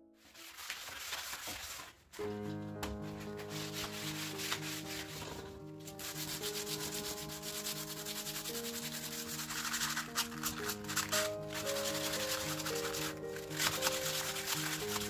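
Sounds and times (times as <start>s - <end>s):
soft background music: 0.0s - 15.0s
sanding pad rasping on wood: 6.0s - 15.0s.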